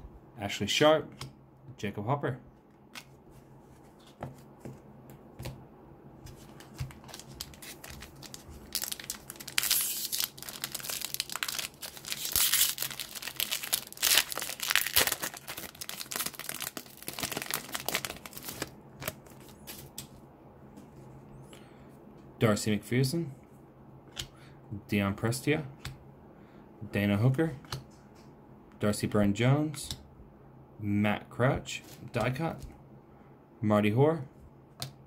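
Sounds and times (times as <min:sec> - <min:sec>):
foil wrapper crinkling and tearing: 0:06.6 - 0:19.9.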